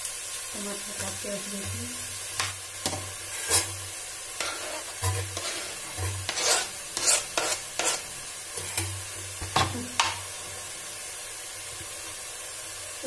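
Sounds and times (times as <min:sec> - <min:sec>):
food sizzling in covered pan: 0:00.0 - 0:13.0
knife scraping cutting board: 0:03.3 - 0:03.8, 0:04.4 - 0:08.8.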